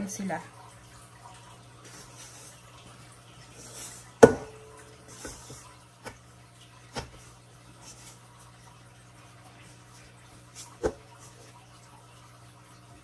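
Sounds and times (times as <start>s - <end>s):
utensils stirring dough in metal bowl: 3.6s - 6.2s.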